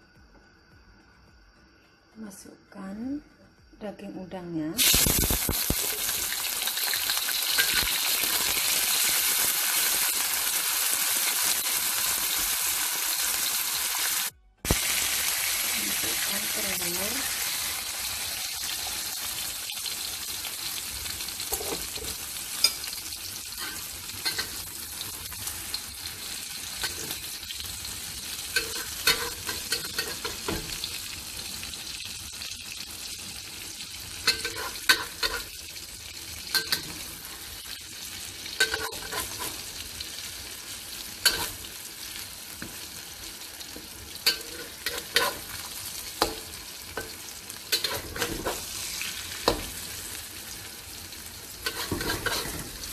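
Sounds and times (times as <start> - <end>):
eggs sizzling in hot oil: 4.8 - 52.9
metal spatula scraping wok: 21.5 - 24.6, 28.5 - 30.7, 34.3 - 35.6, 38.6 - 39.7, 41.2 - 41.7, 44.2 - 46.4, 47.7 - 48.7, 51.6 - 52.9.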